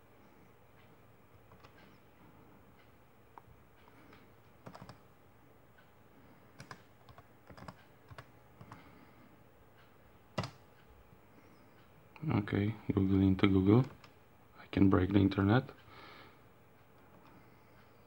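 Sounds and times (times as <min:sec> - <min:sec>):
computer keyboard keystrokes: 0:01.5 - 0:01.8, 0:04.6 - 0:05.0, 0:06.5 - 0:08.8, 0:10.3 - 0:10.6, 0:13.8 - 0:14.2.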